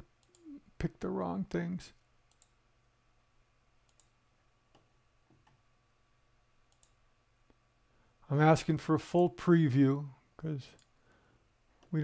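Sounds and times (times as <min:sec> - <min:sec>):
faint computer mouse clicks: 0:02.3 - 0:02.6, 0:03.9 - 0:05.6, 0:06.7 - 0:07.0.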